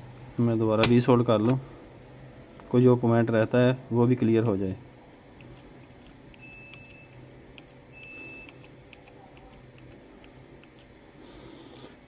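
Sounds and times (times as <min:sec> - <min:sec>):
soldering iron ticking: 0:05.4 - 0:11.0
short high beeps: 0:07.9 - 0:08.5.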